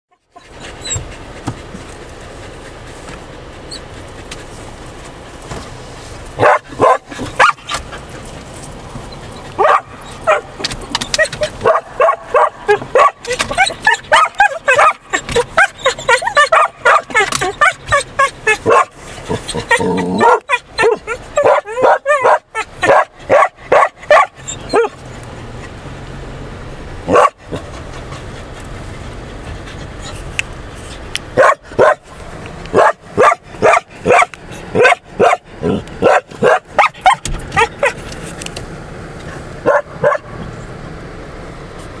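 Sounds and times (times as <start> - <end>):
dog barking and yipping: 6.4 - 8.2, 9.2 - 25.0, 27.0 - 28.6, 31.3 - 32.1, 32.7 - 38.1, 39.6 - 40.4.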